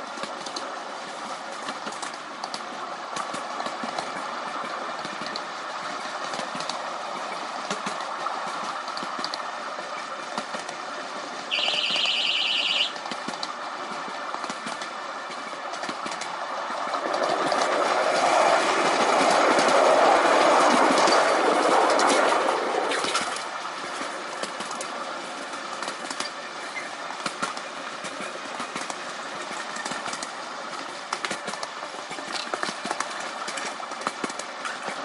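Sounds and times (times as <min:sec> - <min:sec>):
wheels clicking over rails: 0:00.0 - 0:35.0
buzzing train horn: 0:11.5 - 0:13.0.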